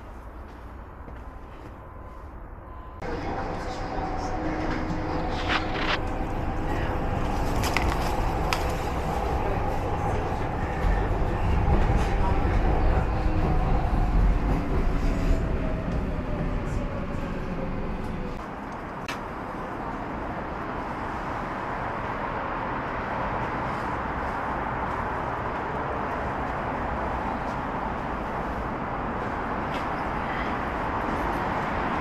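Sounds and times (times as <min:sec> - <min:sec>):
train rumble with motor whine: 0:03.0 - 0:18.5.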